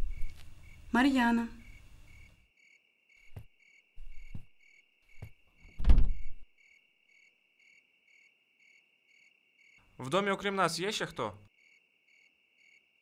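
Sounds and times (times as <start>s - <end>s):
crickets chirping: 0.0s - 13.0s
wooden door thud: 5.2s - 6.4s.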